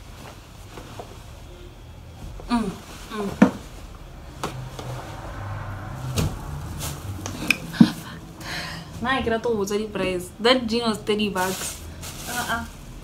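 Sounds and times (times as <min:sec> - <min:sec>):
cloth rustling: 0:11.3 - 0:13.0.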